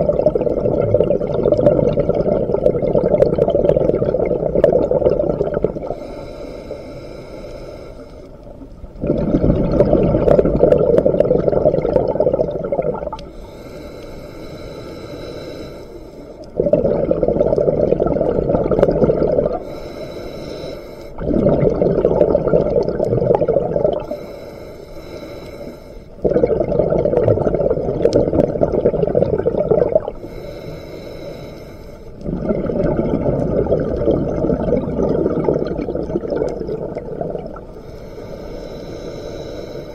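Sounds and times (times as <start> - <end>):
exhaled bubbles rumbling: 0.0 - 6.0, 8.4 - 13.4, 16.4 - 19.7, 21.2 - 24.2, 26.2 - 30.2, 32.1 - 37.8
hissing regulator inhale: 5.8 - 8.5, 13.2 - 16.6, 19.5 - 21.2, 23.9 - 26.2, 30.1 - 32.2, 37.6 - 39.9.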